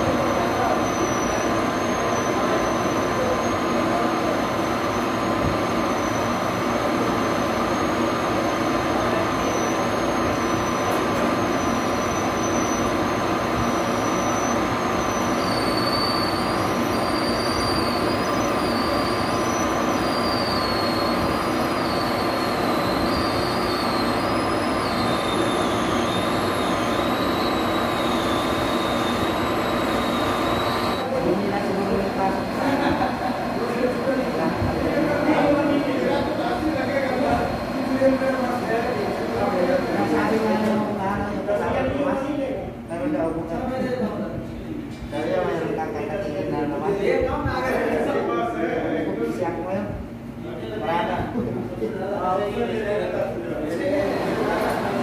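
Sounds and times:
high squeal from cutting: 0:00.0 - 0:04.0, 0:04.6 - 0:06.5, 0:07.2 - 0:31.1
lathe machine hum: 0:00.0 - 0:41.6, 0:52.6 - 0:55.0.

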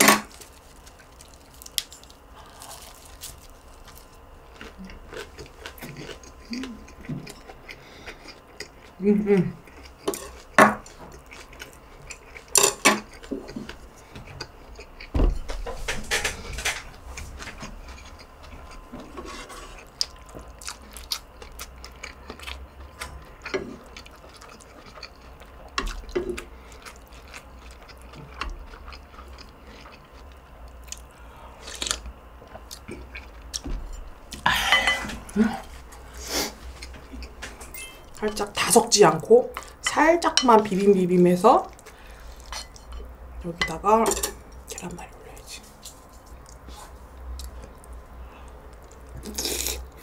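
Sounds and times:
person chewing food: 0:00.2 - 0:38.6, 0:45.7 - 0:50.0
utensils clinking against bowl: 0:34.6 - 0:35.2, 0:37.5 - 0:38.8, 0:42.4 - 0:44.4.

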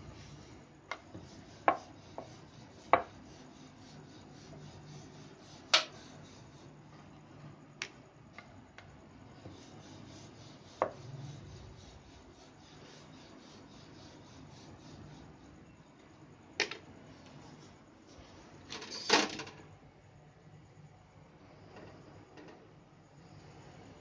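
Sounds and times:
rolling pin rolling dough: 0:00.0 - 0:16.0
faint low hum: 0:00.0 - 0:24.0
rolling pin knocking on board: 0:00.9 - 0:03.2, 0:10.8 - 0:11.0.

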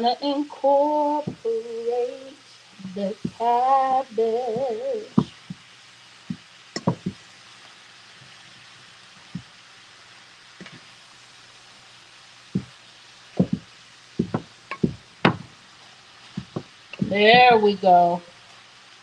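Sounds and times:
wooden spoons knocking on frying pan: 0:03.2 - 0:03.5, 0:04.5 - 0:05.6, 0:06.3 - 0:07.2, 0:12.6 - 0:12.8, 0:13.4 - 0:15.6, 0:16.3 - 0:17.6.

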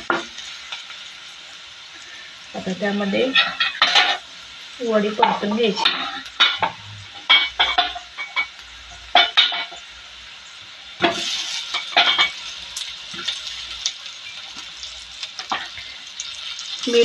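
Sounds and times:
food sizzling in oil: 0:00.0 - 0:17.0
spatula knocking and scraping pan: 0:03.2 - 0:04.2, 0:05.1 - 0:09.8, 0:11.0 - 0:12.4.

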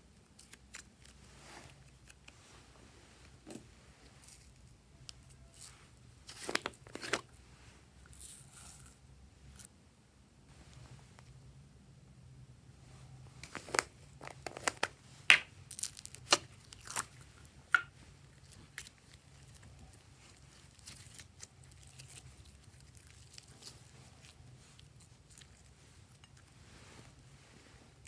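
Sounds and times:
sticky slime crackling: 0:13.5 - 0:17.8.

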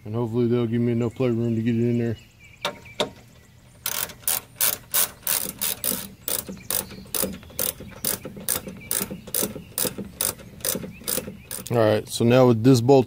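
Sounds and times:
hand ratchet clicking: 0:03.8 - 0:11.8.

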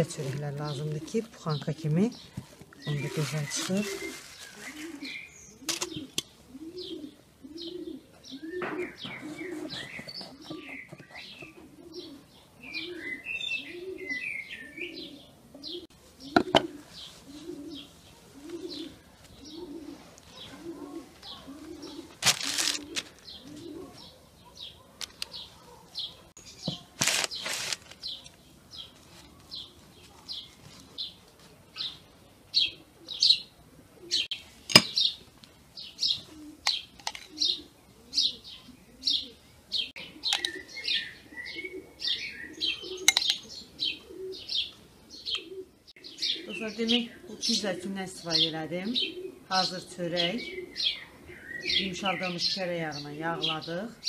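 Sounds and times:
dove cooing: 0:00.0 - 0:26.3, 0:28.0 - 0:35.1, 0:35.8 - 0:54.0
small birds chirping: 0:00.0 - 0:54.0
scraping or crunching noises: 0:02.3 - 0:06.0, 0:19.9 - 0:23.7, 0:26.6 - 0:31.6.

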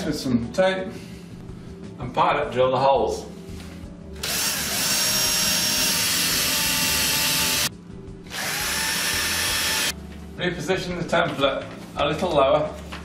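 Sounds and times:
cordless drill drilling into wood: 0:04.2 - 0:07.7, 0:08.3 - 0:09.9.

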